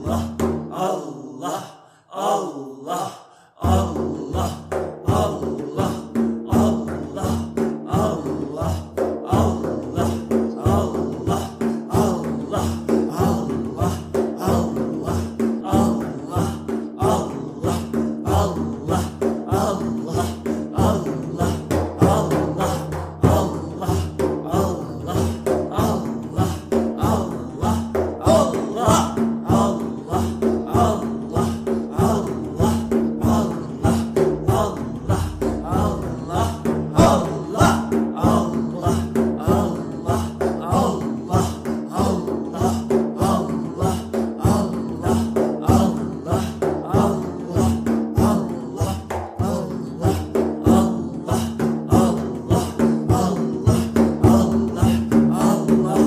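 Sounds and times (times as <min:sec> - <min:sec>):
fast percussion beat: 0:00.0 - 0:00.8, 0:03.6 - 0:56.0
chanted repeated invocation: 0:00.0 - 0:56.0
steady low drone: 0:29.6 - 0:40.2.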